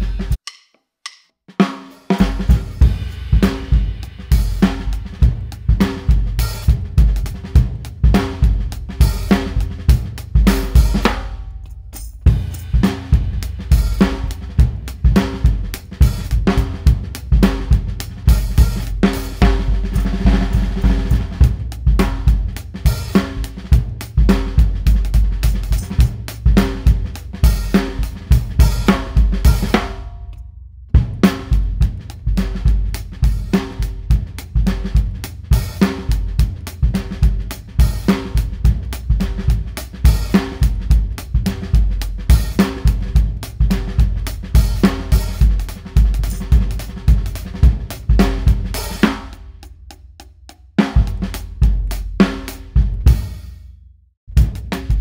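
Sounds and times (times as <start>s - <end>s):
drum kit groove: 0.0s - 53.7s, 54.3s - 55.0s.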